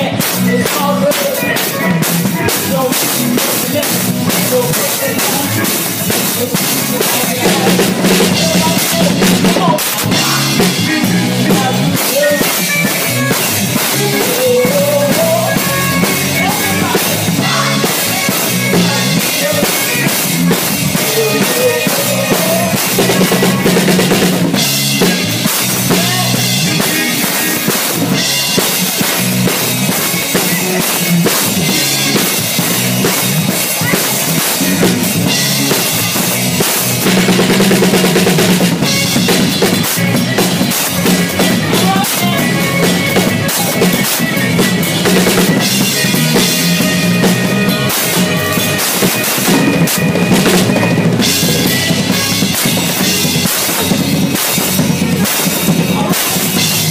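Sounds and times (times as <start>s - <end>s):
drum kit playing: 0.0s - 56.9s.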